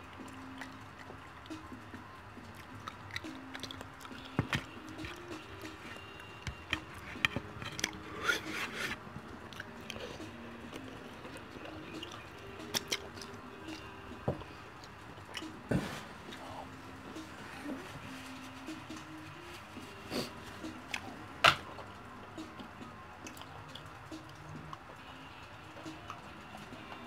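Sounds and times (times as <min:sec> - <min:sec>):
faint background music: 0:00.0 - 0:27.0
wet eating sounds: 0:00.2 - 0:14.0.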